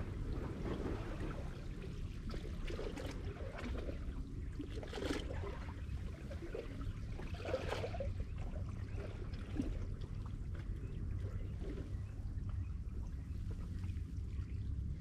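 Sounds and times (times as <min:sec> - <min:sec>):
small splashes: 0:00.0 - 0:11.9
water lapping among rocks: 0:00.0 - 0:12.1
steady low rumble: 0:00.0 - 0:15.0.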